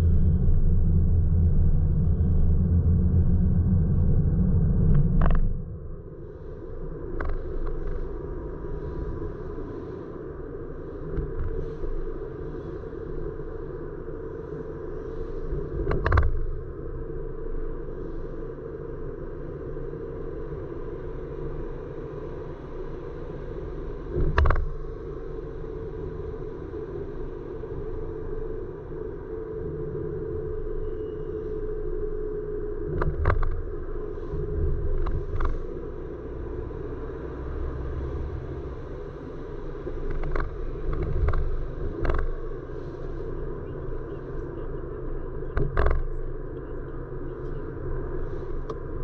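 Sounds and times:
car road noise rumble: 0:00.0 - 0:06.6, 0:32.9 - 0:49.0.

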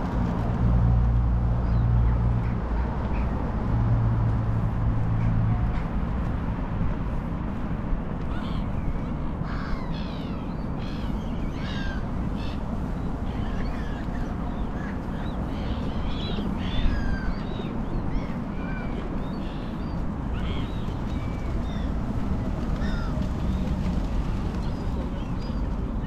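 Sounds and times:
flock of birds calling: 0:08.3 - 0:22.0, 0:22.6 - 0:23.7.

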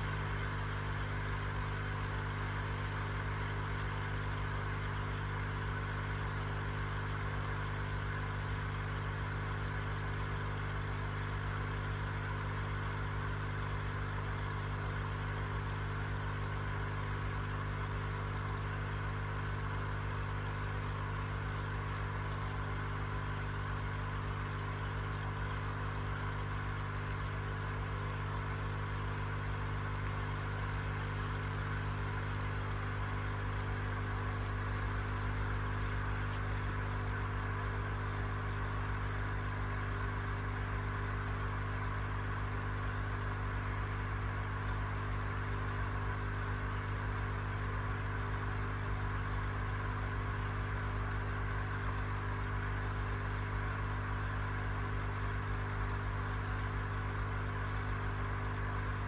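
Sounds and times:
low electric hum: 0:00.0 - 0:59.0.

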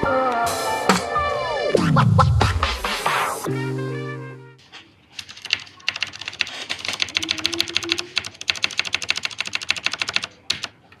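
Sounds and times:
mechanical keyboard typing: 0:05.2 - 0:11.0.

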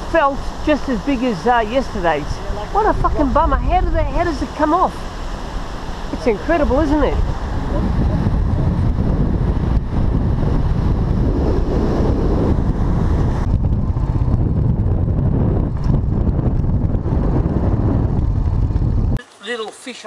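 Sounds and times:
surf washing up beach: 0:00.0 - 0:13.3
wind buffeting microphone: 0:00.0 - 0:19.2.

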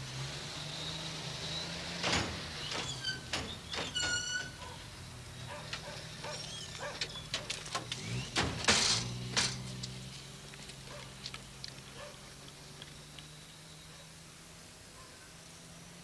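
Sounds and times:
armoured vehicle engine drone: 0:00.0 - 0:16.0
knocks and clanks of doors: 0:02.0 - 0:04.6
high squeak: 0:02.7 - 0:04.7.

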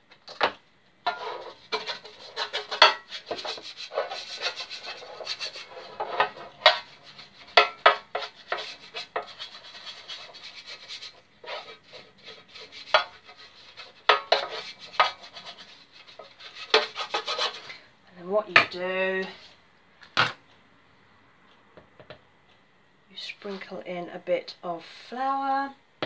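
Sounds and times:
pastry brush scrubbing metal tin: 0:01.1 - 0:17.8.

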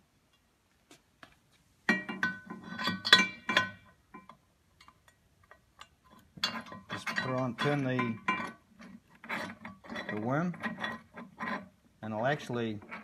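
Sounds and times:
metal hand tools clinking: 0:05.8 - 0:08.6.

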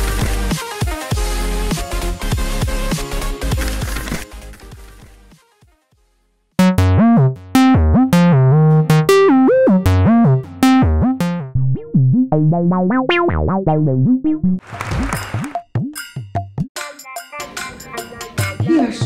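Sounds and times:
electronic keyboard melody: 0:06.6 - 0:14.6.

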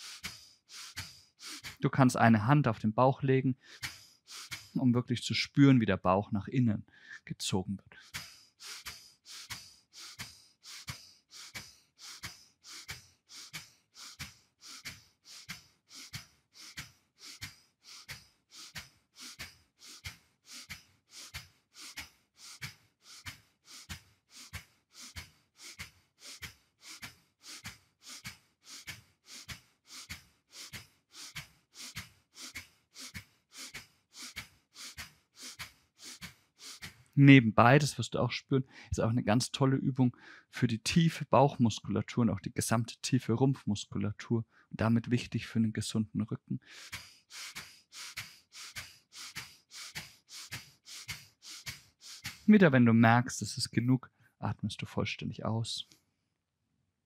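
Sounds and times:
man's forceful nasal exhalations: 0:00.0 - 0:01.8, 0:03.6 - 0:04.8, 0:08.0 - 0:37.2, 0:46.6 - 0:52.5.

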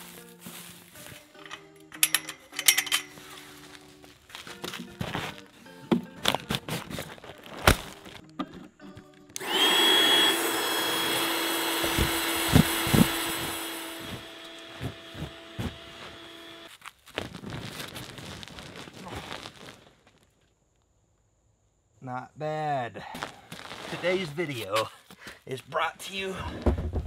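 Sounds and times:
electric air pump running: 0:09.4 - 0:16.7.

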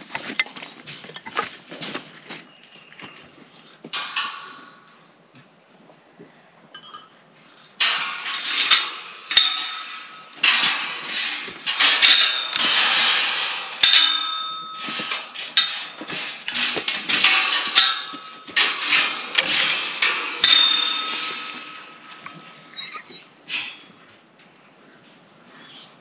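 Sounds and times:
metal gate clanking and rattling: 0:03.0 - 0:05.1, 0:06.8 - 0:24.1.

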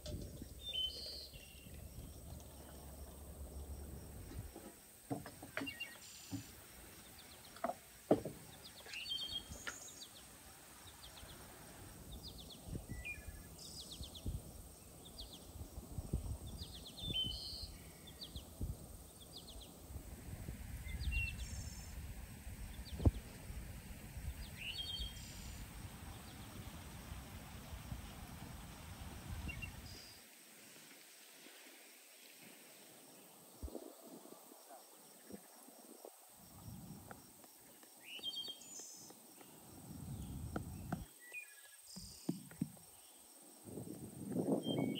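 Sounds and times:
insects: 0:00.0 - 0:44.9
birds chirping and trilling: 0:00.4 - 0:02.8, 0:44.4 - 0:44.9.

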